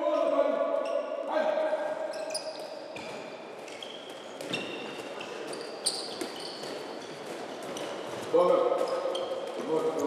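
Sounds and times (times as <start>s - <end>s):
sneakers squeaking on floor: 0.1s - 1.3s, 2.0s - 10.0s
balls bouncing on wooden floor: 2.5s - 10.0s.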